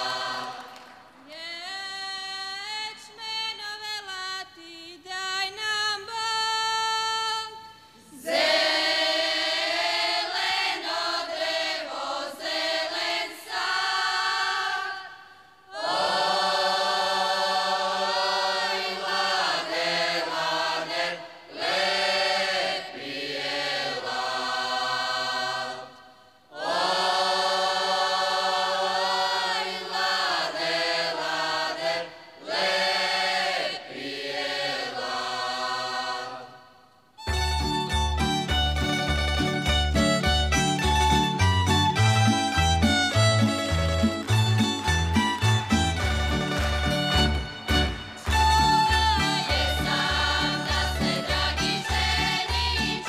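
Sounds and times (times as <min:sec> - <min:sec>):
group singing unaccompanied: 0:00.0 - 0:01.3, 0:08.1 - 0:36.8, 0:46.6 - 0:53.0.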